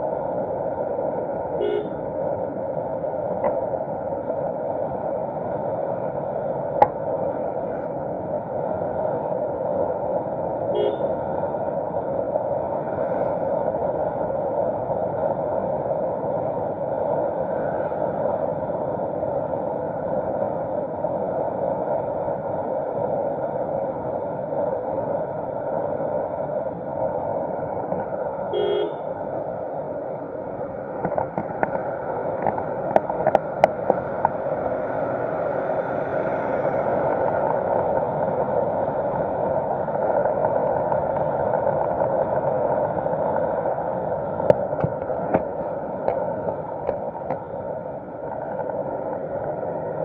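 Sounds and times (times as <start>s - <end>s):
vehicle engine and road noise: 0.0s - 50.0s
short horn toot: 1.6s - 2.0s, 10.8s - 11.1s, 28.6s - 29.0s.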